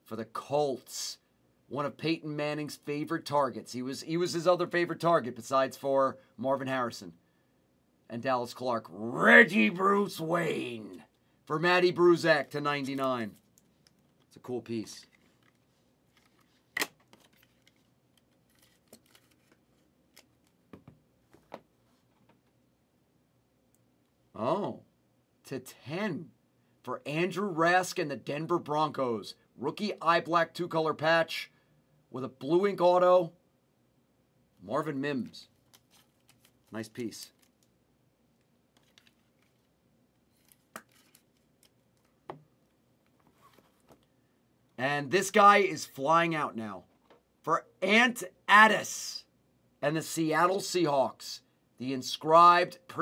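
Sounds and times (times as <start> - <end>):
cards rustling and tapping: 15.0 - 22.4, 35.6 - 36.7, 38.7 - 39.7, 40.4 - 42.5.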